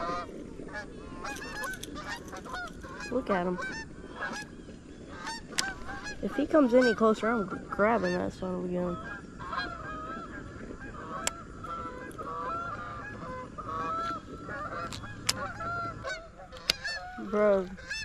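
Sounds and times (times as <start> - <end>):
geese honking: 0.0 - 18.0.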